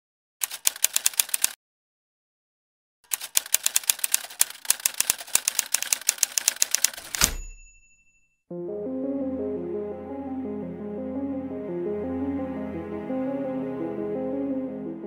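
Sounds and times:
typewriter keys clacking: 0:00.4 - 0:01.6, 0:03.1 - 0:07.6.

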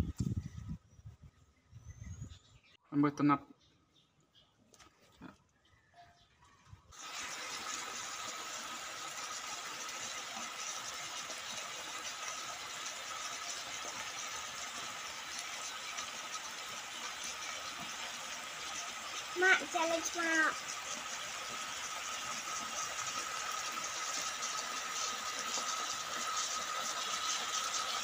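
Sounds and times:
meat and vegetables sizzling: 0:07.0 - 0:28.0.

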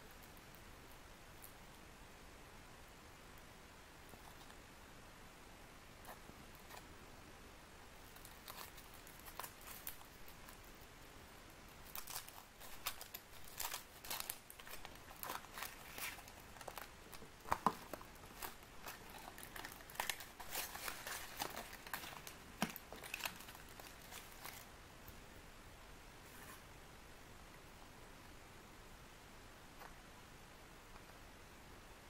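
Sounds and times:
foil wrapper crinkling and tearing: 0:08.2 - 0:10.6, 0:11.8 - 0:24.7.

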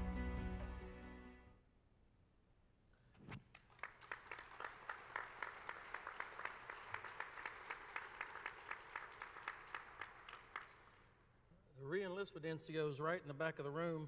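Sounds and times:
audience applauding: 0:03.5 - 0:11.1
steady rhythmic clapping: 0:03.5 - 0:11.2.

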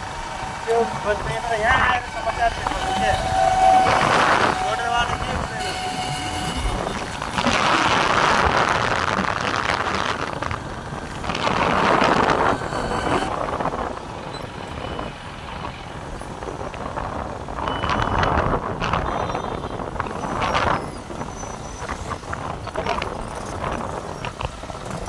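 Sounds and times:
motorcycle engine: 0:00.0 - 0:13.3
passing road traffic: 0:00.0 - 0:25.0
wind rushing over microphone: 0:00.0 - 0:25.0.

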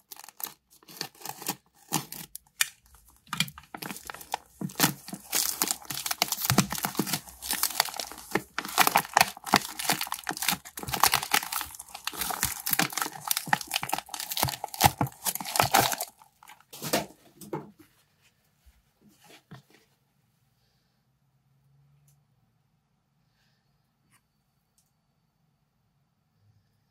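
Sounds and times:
plastic packaging crinkling: 0:00.0 - 0:17.2.

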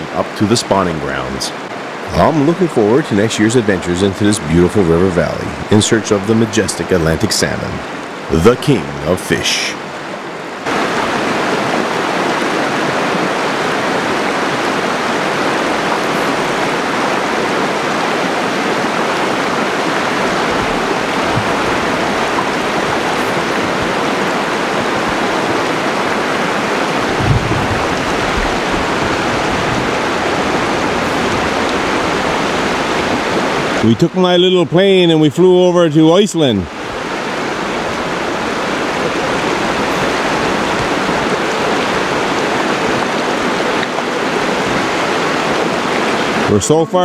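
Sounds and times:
river water rushing over rocks: 0:00.0 - 0:34.3, 0:36.4 - 0:46.6
low rumble: 0:27.1 - 0:32.2.

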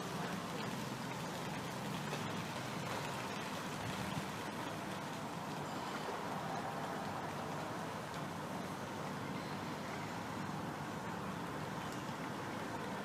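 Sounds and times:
urban background hum and hiss: 0:00.0 - 0:13.0.

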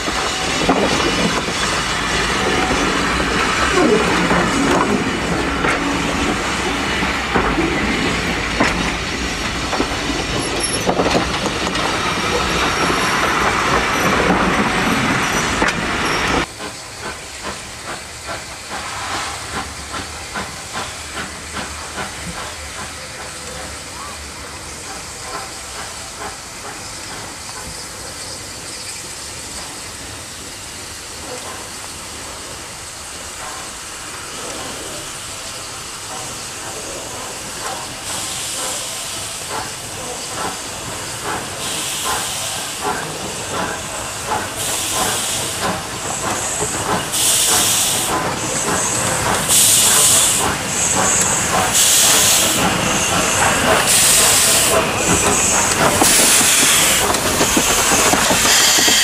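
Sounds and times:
steam hissing: 0:00.0 - 0:59.0
steam locomotive chuffing: 0:00.0 - 0:59.0.

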